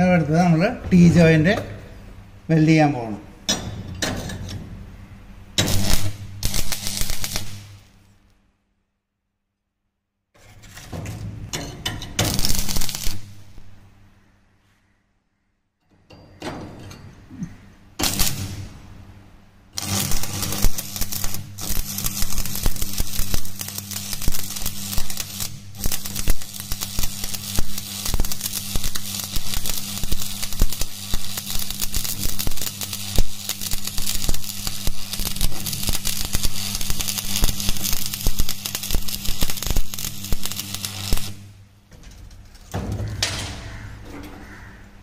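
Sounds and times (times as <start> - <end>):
welding arc crackling: 5.6 - 8.1, 11.8 - 13.7, 18.0 - 18.9, 19.8 - 41.6.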